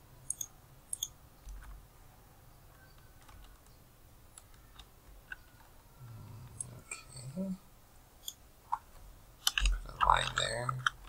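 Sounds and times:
low steady hum: 0:00.0 - 0:11.0
mouse clicks: 0:00.2 - 0:01.6.

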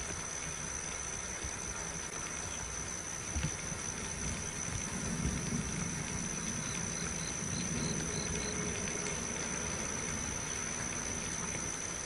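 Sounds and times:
insect drone: 0:00.0 - 0:12.0
outdoor background noise: 0:00.0 - 0:12.0.

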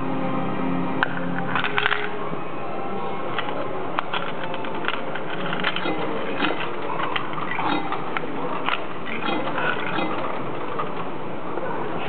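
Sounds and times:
coins rattling into coin slot: 0:01.5 - 0:02.2, 0:03.4 - 0:11.0.

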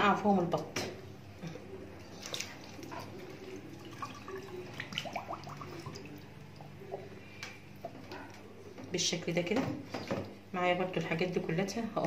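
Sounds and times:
water sloshing in a steel bowl: 0:02.0 - 0:07.1
small splashes: 0:02.1 - 0:06.3.

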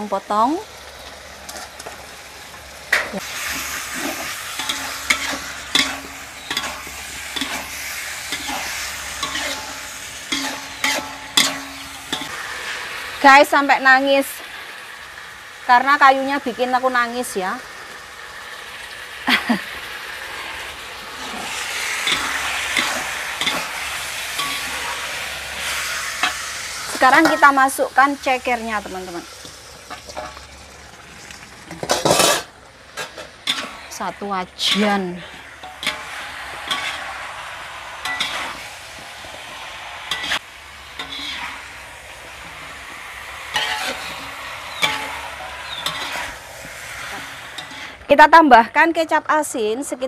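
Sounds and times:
chicken sizzling in a wok: 0:00.0 - 0:49.9
metal spatula clanking on wok: 0:04.0 - 0:07.7, 0:08.3 - 0:12.3, 0:24.4 - 0:24.8, 0:27.2 - 0:27.6, 0:31.8 - 0:33.8, 0:43.5 - 0:46.3.

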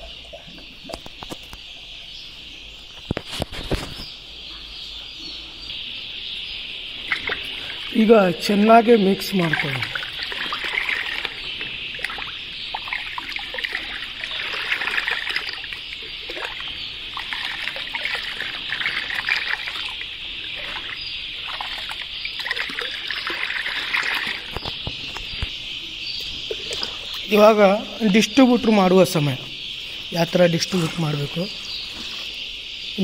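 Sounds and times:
water splashing and trickling: 0:06.6 - 0:25.6, 0:26.2 - 0:29.5, 0:30.1 - 0:32.3.

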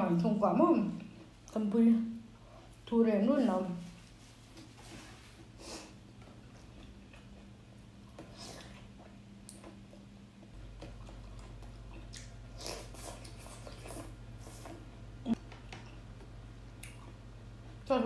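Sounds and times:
steady low hum: 0:00.0 - 0:18.0
chewing and wet mouth sounds: 0:06.0 - 0:17.9.

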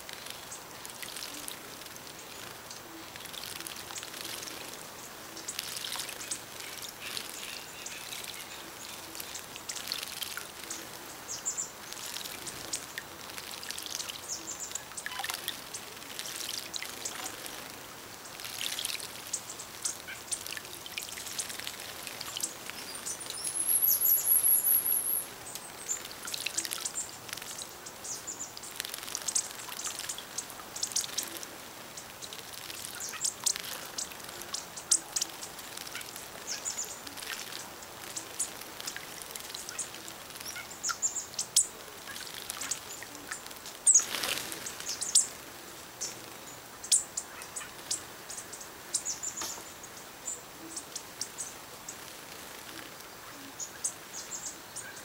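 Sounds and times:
water splashing and dripping: 0:00.0 - 0:07.5, 0:08.1 - 0:45.4
birds chipping and twittering: 0:00.0 - 0:55.0
loud high-pitched bird trill: 0:23.4 - 0:25.3.

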